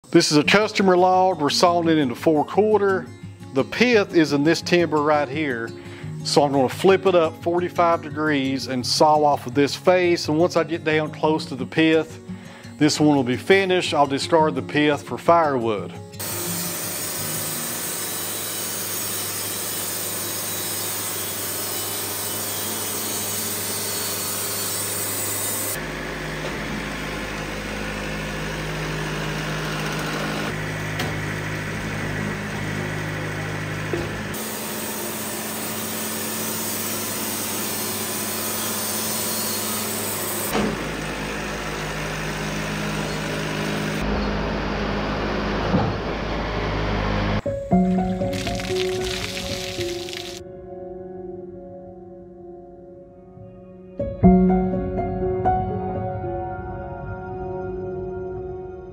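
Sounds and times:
bandsaw blade cutting wood: 16.2 - 44.0, 48.2 - 50.4
sawmill motor running: 16.2 - 47.4, 48.0 - 50.4.

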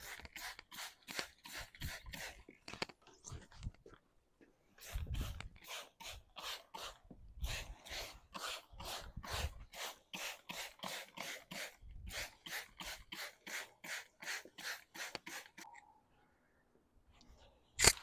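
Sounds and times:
spray bottle hissing: 0.0 - 2.4, 4.8 - 15.6.

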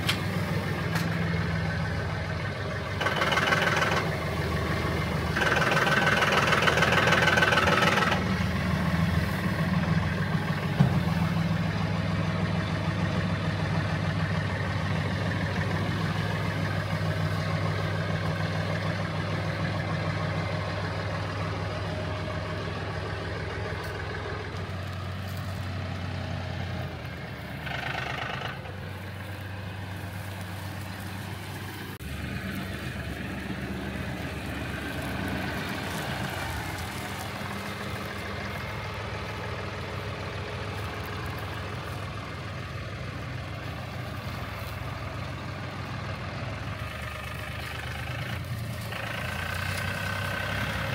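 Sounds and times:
tractor diesel engine running: 0.0 - 50.9.

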